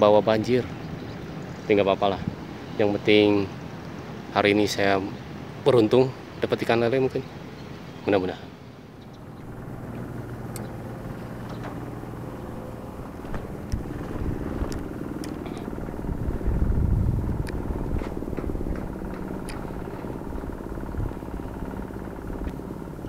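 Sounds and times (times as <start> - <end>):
motor engine running: 8.6 - 23.0.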